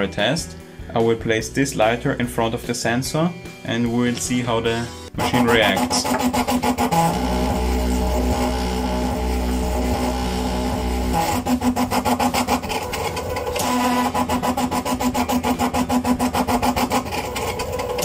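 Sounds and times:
stepper motor pulsing hum: 5.2s - 18.0s.

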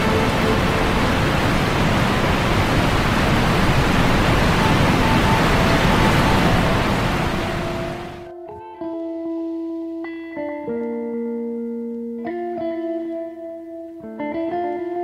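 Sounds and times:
waterfall rushing water: 0.0s - 8.3s.

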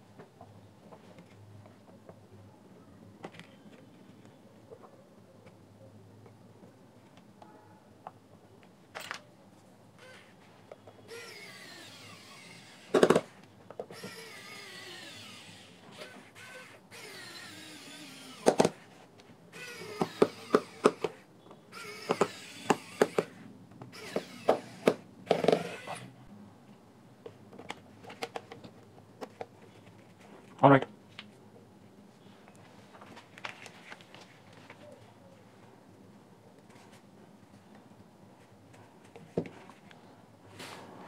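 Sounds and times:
electric screwdriver whirring: 10.0s - 10.3s, 11.1s - 13.3s, 13.9s - 18.8s, 19.5s - 26.2s.

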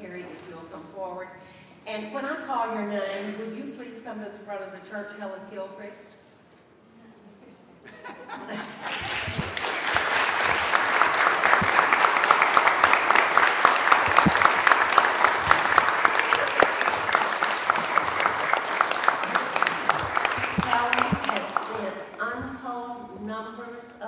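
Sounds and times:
congregation applauding: 8.7s - 22.2s.

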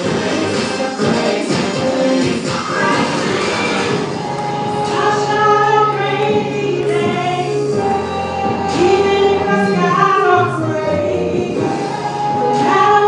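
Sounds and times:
gospel singing: 0.0s - 13.0s
instrumental backing with bass: 0.0s - 13.0s.

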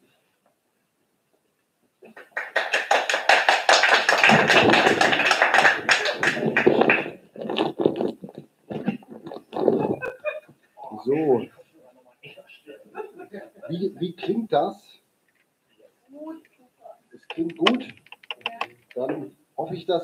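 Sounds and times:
people clapping: 2.0s - 7.8s, 17.3s - 18.8s.

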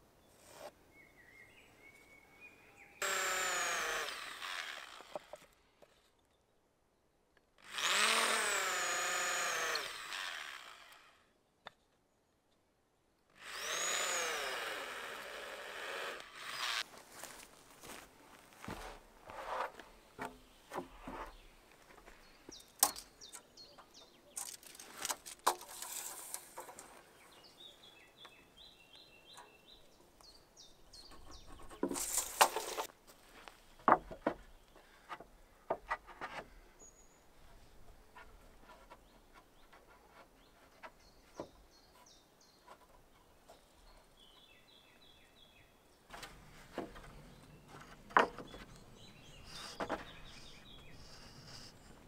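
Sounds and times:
knocks and rustles: 18.6s - 23.1s, 33.8s - 36.6s, 46.1s - 48.8s
small bird calling: 47.0s - 52.0s.

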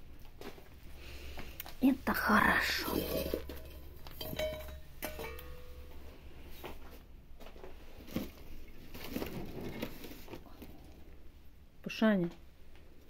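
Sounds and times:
metal bowls clinking: 2.5s - 6.2s.

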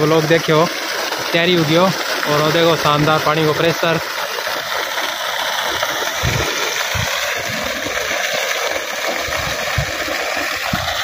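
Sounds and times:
water gushing from pipe: 0.0s - 11.0s.

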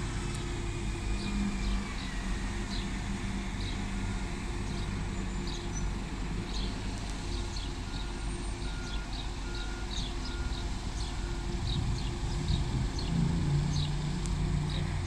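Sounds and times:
diesel bus engines rumbling: 0.0s - 15.0s
small birds chirping: 4.6s - 14.1s.

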